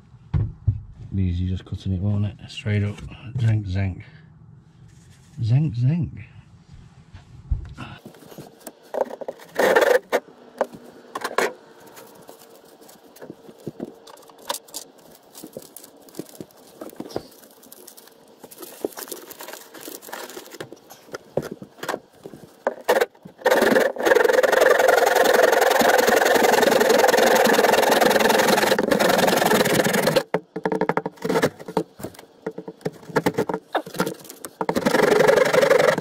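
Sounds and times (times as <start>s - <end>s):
handsaw cutting wood: 9.4s - 10.2s, 22.7s - 30.3s, 33.8s - 36.0s
tools and timber knocking: 30.1s - 36.0s.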